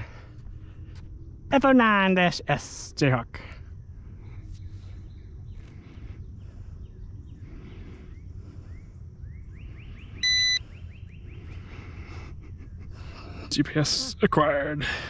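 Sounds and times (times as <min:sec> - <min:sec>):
low outdoor rumble: 0:00.0 - 0:15.0
faint chirps: 0:03.4 - 0:14.8
loud electronic beep: 0:10.2 - 0:10.6.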